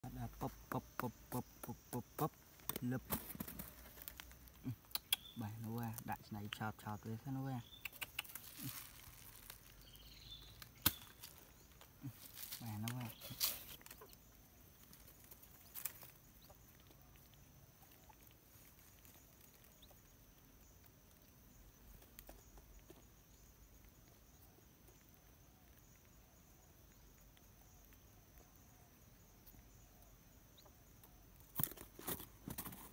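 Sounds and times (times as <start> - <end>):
sharp clicks: 4.8 - 6.1, 7.7 - 8.6.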